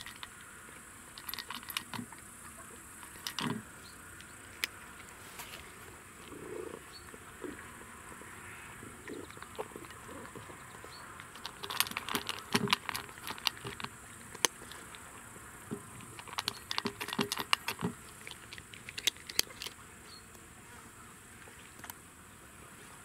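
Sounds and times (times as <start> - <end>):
cat chewing from metal bowl: 0.0 - 0.4, 1.0 - 2.2, 2.9 - 5.3, 7.4 - 19.8.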